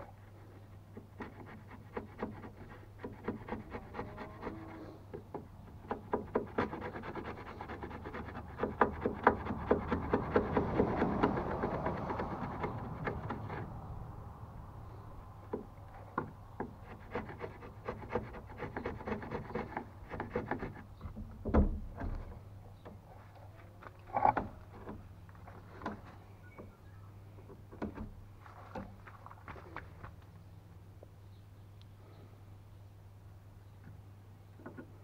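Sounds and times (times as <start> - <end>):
chisel shaving wood: 0.9 - 4.8, 5.8 - 13.8, 16.2 - 20.9
chisel scraping cuts: 0.9 - 13.8, 16.2 - 21.2.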